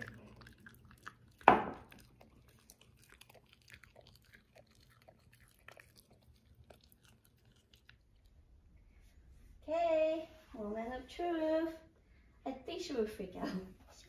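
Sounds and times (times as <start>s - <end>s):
dog chewing treat crunching: 0.0s - 8.4s.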